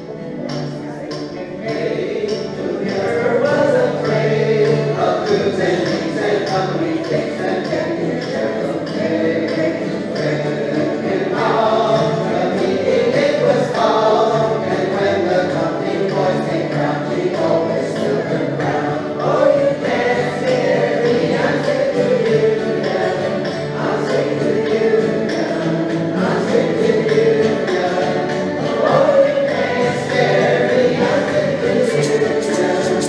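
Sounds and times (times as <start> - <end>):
strummed acoustic guitars: 0.0 - 33.0
group singing in unison: 1.1 - 33.0.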